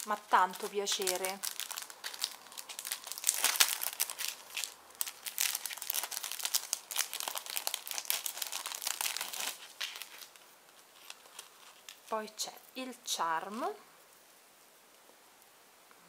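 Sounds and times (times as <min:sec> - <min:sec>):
cellophane bag crinkling: 0:00.0 - 0:12.3.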